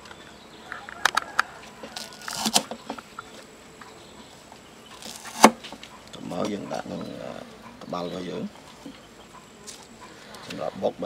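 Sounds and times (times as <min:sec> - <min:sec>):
cleaver chopping on wooden board: 0:05.0 - 0:05.6.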